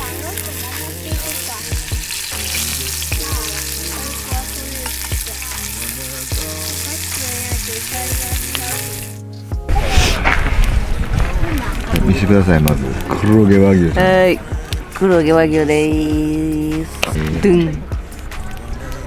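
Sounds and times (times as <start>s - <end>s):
beef sizzling in a skillet: 0.0s - 9.2s
background music: 0.0s - 19.0s.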